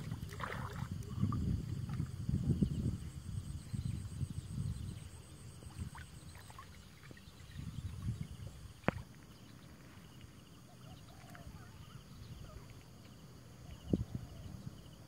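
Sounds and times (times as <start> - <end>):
shallow water sloshing and splashing: 0.0 - 2.2, 5.5 - 10.4.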